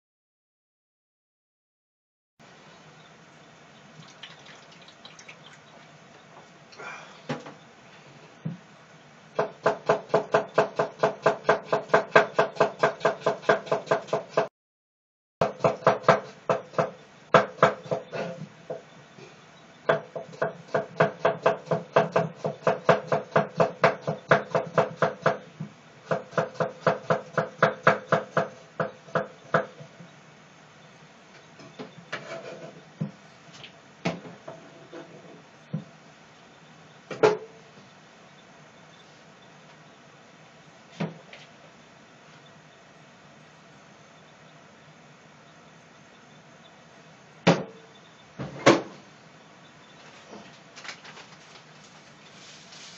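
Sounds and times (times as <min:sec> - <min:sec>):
knife chopping on wooden board: 0:09.4 - 0:14.5, 0:19.9 - 0:25.4, 0:26.1 - 0:29.7.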